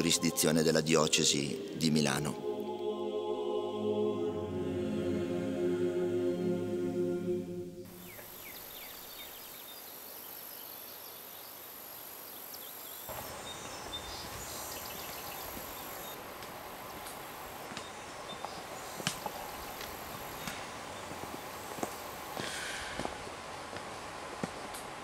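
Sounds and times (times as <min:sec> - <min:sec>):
steady hiss: 0:07.8 - 0:25.0
faint bird chirps: 0:07.9 - 0:16.2.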